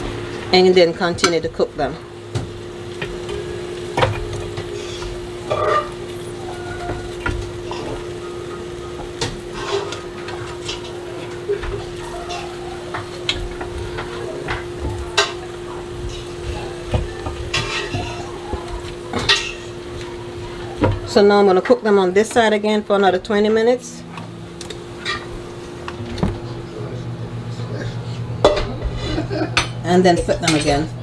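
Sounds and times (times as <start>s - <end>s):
steady hum: 0.0s - 31.0s
utensils scraping grill plate: 3.1s - 22.6s, 24.9s - 25.7s.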